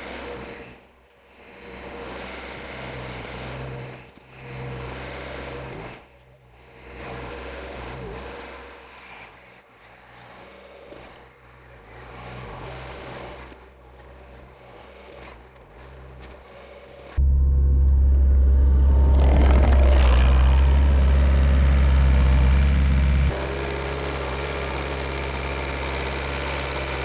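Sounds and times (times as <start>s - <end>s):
diesel engine working: 17.2s - 27.0s.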